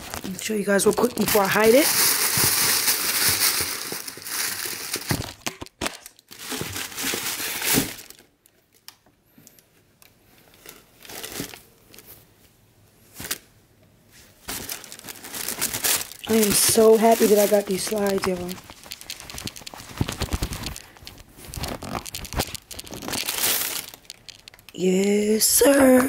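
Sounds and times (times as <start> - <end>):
tissue paper crinkling: 0.0 - 5.4, 6.2 - 8.2, 10.4 - 12.2, 14.4 - 25.4
handling sounds: 0.0 - 8.2, 14.5 - 26.0.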